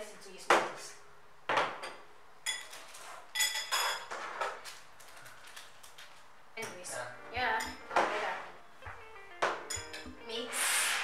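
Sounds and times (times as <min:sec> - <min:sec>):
spoon clinking on ceramic bowls: 0:01.8 - 0:04.1, 0:07.5 - 0:08.0, 0:09.5 - 0:10.2.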